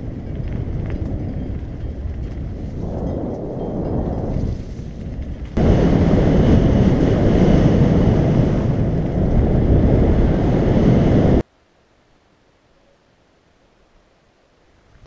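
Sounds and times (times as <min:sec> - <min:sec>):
wind buffeting microphone: 0:00.0 - 0:11.4.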